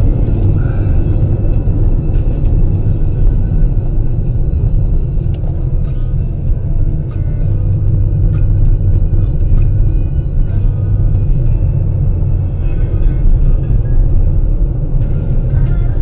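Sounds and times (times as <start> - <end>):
car driving rumble: 0.0 - 16.0.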